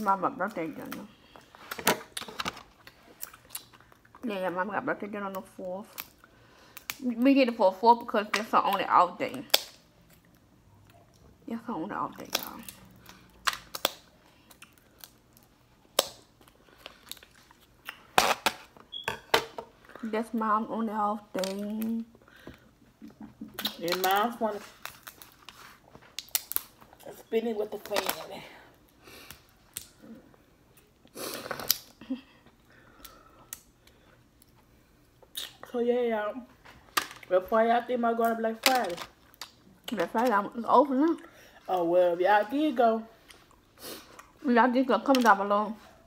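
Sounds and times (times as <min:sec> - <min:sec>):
crab shells cracking: 0:09.5 - 0:10.4, 0:12.2 - 0:18.6, 0:26.1 - 0:26.9, 0:31.5 - 0:32.0, 0:38.2 - 0:40.3.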